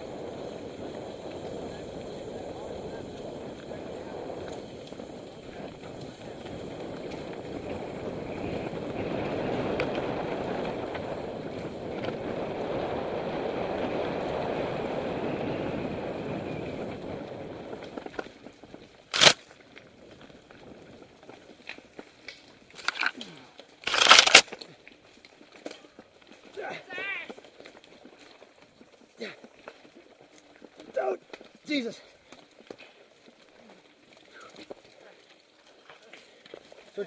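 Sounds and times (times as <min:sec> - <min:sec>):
wind and tyre noise: 0:00.0 - 0:37.0
small clicks and rattles: 0:19.1 - 0:19.4, 0:21.2 - 0:26.4.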